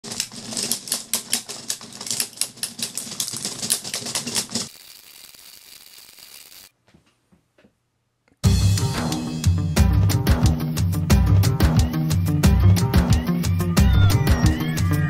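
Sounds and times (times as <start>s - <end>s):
plastic pellets clicking and clattering: 0.0s - 6.7s.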